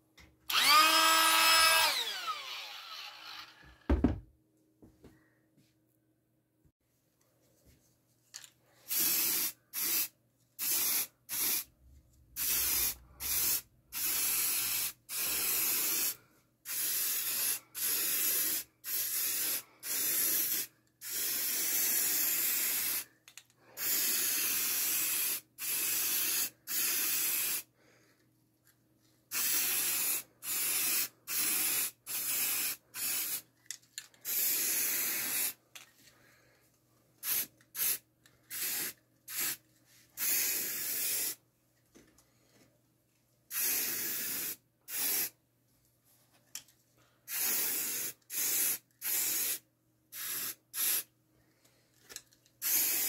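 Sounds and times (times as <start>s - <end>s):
spray can hissing: 8.9s - 11.7s, 12.4s - 23.0s, 29.3s - 33.4s, 34.2s - 35.6s, 37.2s - 39.6s, 40.2s - 41.4s, 43.5s - 45.3s, 47.3s - 51.0s, 52.6s - 53.0s.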